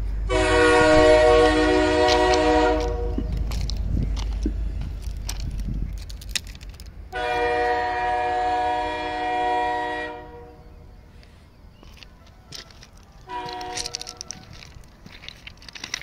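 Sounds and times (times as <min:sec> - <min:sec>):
low rumble: 0:00.0 - 0:08.0
train horn blast: 0:00.3 - 0:03.4, 0:07.1 - 0:10.8, 0:13.3 - 0:14.0.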